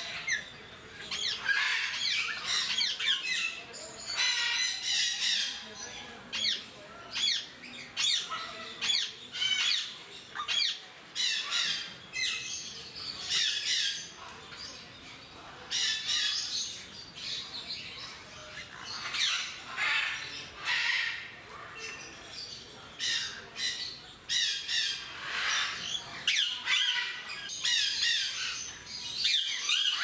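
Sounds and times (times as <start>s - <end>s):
parrots whistling and squawking: 1.1s - 5.5s, 23.0s - 30.0s.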